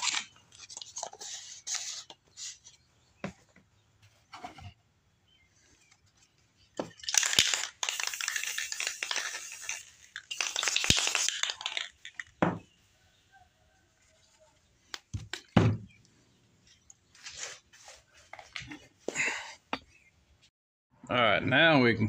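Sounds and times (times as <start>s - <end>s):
airbrush spraying hiss: 7.8s - 11.4s
plastic bottle knocking on wood: 12.4s - 12.6s.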